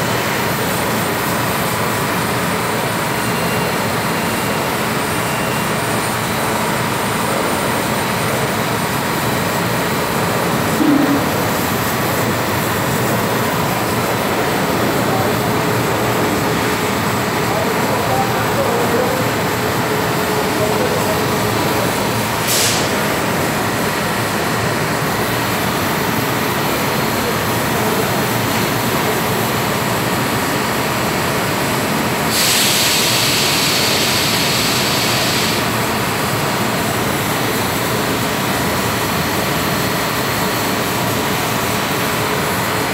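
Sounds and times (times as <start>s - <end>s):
factory machinery drone: 0.0s - 42.9s
hiss: 22.4s - 23.1s, 32.2s - 35.8s.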